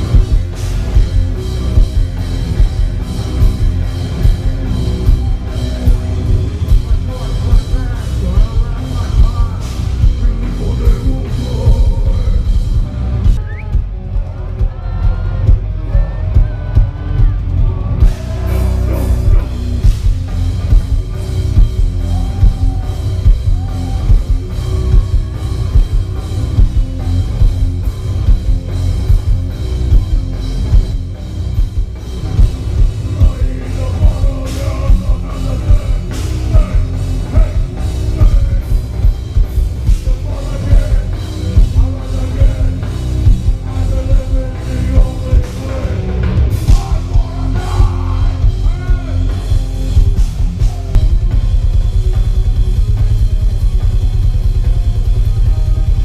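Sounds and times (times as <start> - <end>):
live heavy metal band: 0.0 - 56.0.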